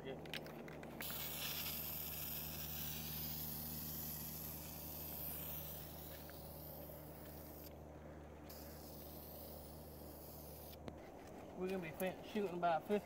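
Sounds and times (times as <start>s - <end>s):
aerosol spray can hissing: 1.0s - 7.7s, 8.5s - 10.8s.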